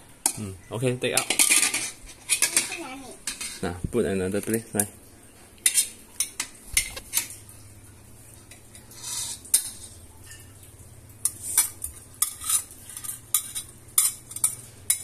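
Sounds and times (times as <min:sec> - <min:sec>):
metal utensils scraping a wok: 0:01.2 - 0:03.6, 0:08.7 - 0:10.0, 0:11.2 - 0:15.0.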